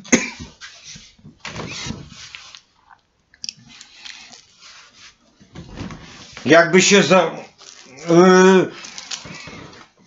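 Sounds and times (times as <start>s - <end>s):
clothing rubbing against microphone: 0.5s - 2.8s, 3.6s - 6.7s.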